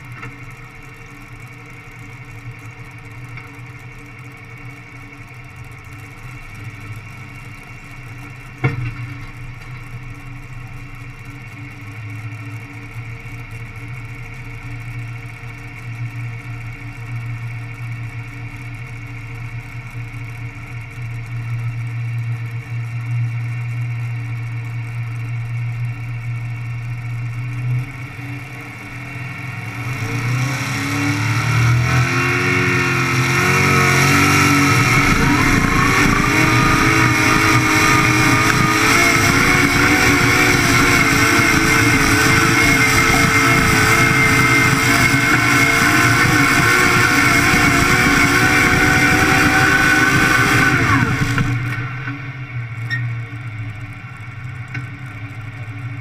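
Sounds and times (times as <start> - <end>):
tractor engine revving: 28.3 - 53.0.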